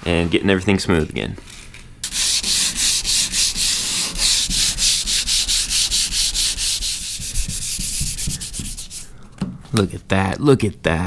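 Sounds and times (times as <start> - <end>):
sandpaper rubbing on metal: 2.0 - 9.1.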